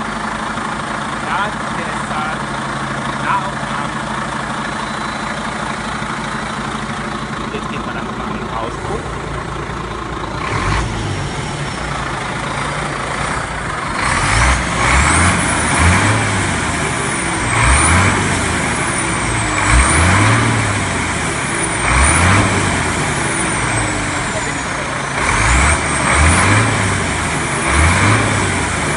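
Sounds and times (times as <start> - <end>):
diesel engine idling and revving: 0.0 - 28.9
turbo whistle: 4.8 - 5.4.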